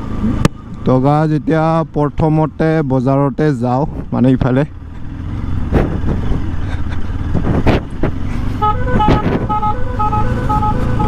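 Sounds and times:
motorcycle engine running: 0:00.0 - 0:11.0
engine knocks: 0:04.8 - 0:09.5
musical horn playing a tune: 0:08.6 - 0:11.0.

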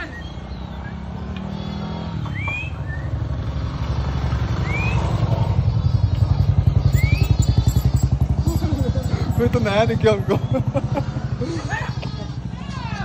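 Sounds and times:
short rising whistles: 0:00.1 - 0:03.4, 0:04.5 - 0:05.6, 0:06.8 - 0:08.1
motorcycle engine puttering: 0:03.7 - 0:11.4.

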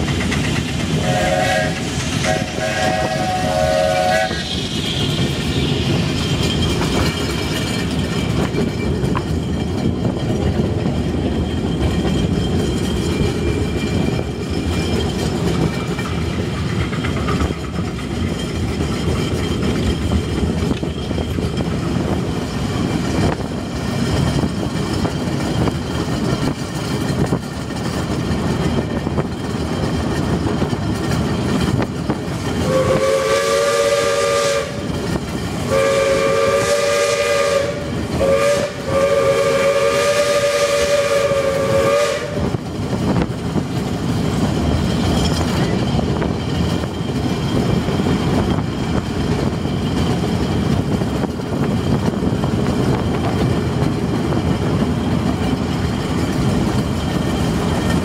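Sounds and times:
train wheels clattering on rails: 0:00.0 - 0:58.0
steam locomotive whistle: 0:00.9 - 0:05.6, 0:32.6 - 0:35.0, 0:35.6 - 0:42.7.

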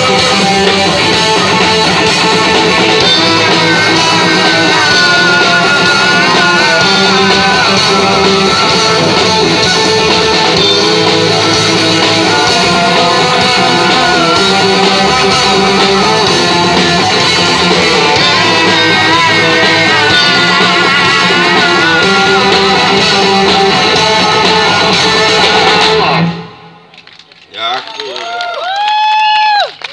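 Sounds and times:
wavering lead guitar line: 0:00.0 - 0:26.8
live rock band playing: 0:00.0 - 0:26.9.

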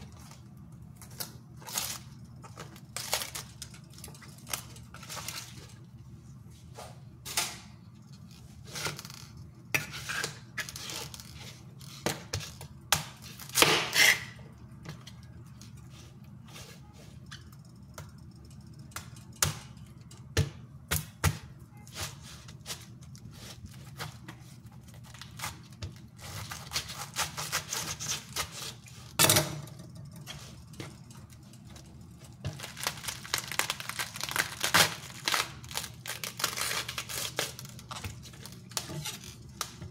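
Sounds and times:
cabbage leaves tearing: 0:25.0 - 0:29.1, 0:32.5 - 0:39.9.

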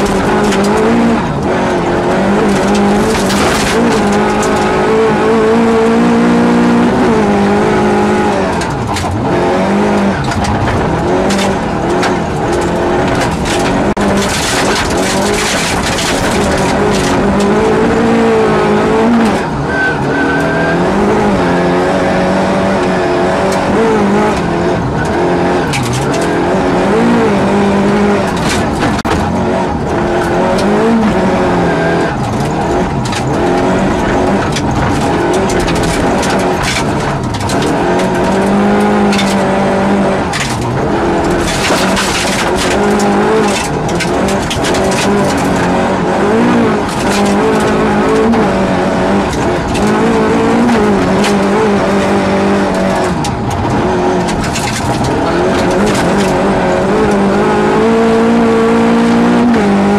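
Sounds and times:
car engine revving: 0:00.0 - 0:59.9.

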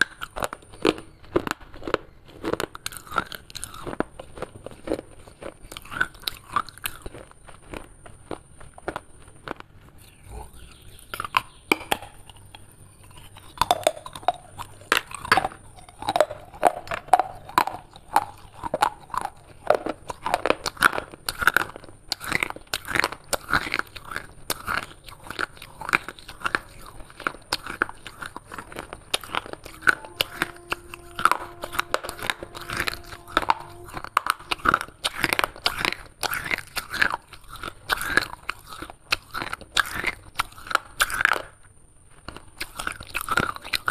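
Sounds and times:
chewing crunchy clay shards: 0:00.0 - 0:43.9.

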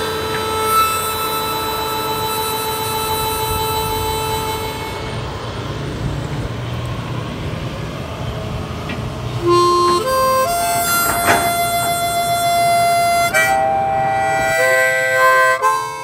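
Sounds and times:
held harmonica note: 0:00.0 - 0:05.8, 0:09.4 - 0:16.0
harmonica melody: 0:00.0 - 0:05.9, 0:09.4 - 0:16.0.

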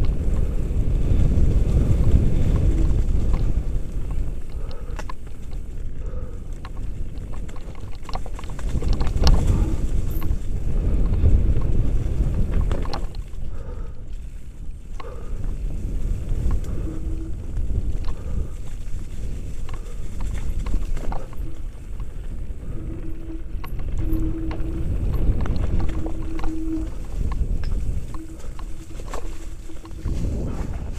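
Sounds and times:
wind buffeting microphone: 0:00.0 - 0:30.9
steady hum: 0:19.8 - 0:30.9.

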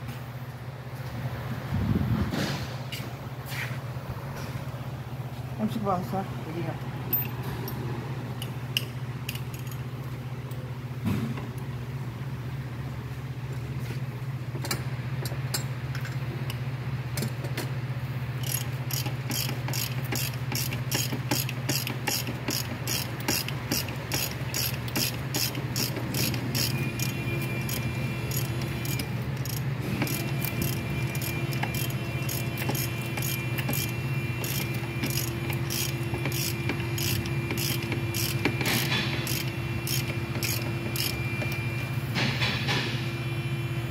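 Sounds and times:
steady low hum: 0:00.0 - 0:43.9
ratchet wrench clicking: 0:18.4 - 0:41.2.

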